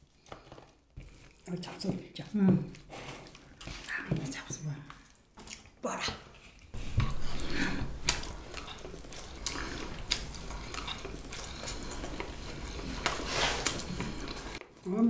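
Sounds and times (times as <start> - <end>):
utensils clinking on dishes: 8.5 - 8.9.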